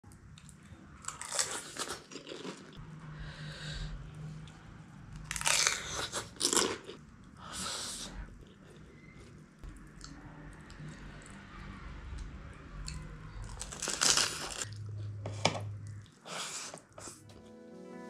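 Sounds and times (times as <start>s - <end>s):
crisp shells crunching: 13.5s - 14.7s.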